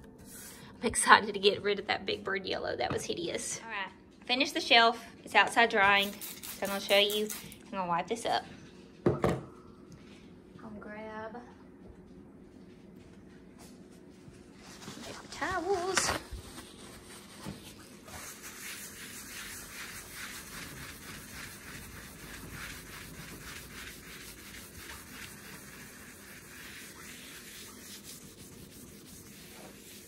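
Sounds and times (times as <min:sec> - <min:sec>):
paper towel rubbing countertop: 0:14.0 - 0:30.0.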